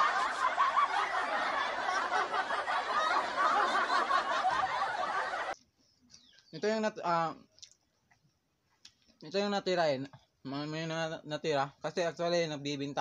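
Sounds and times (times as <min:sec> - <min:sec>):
crowd laughing: 0:00.0 - 0:05.6.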